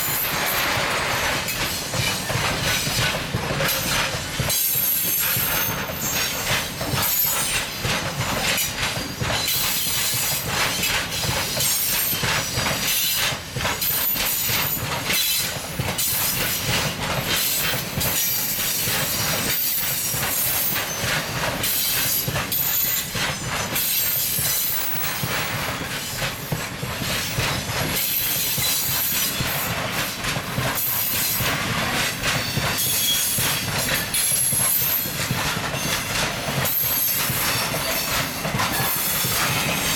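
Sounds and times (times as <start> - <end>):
train wheels clattering over rail joints: 0.0 - 39.9
high wheel squeal: 32.4 - 35.1, 35.8 - 39.9.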